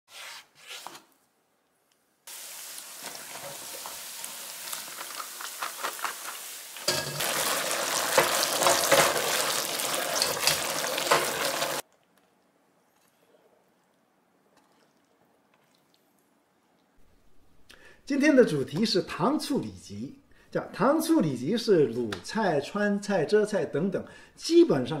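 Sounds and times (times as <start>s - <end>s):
hot oil sizzling: 2.3s - 11.8s
ladle scraping and clicking in wok: 3.0s - 11.8s.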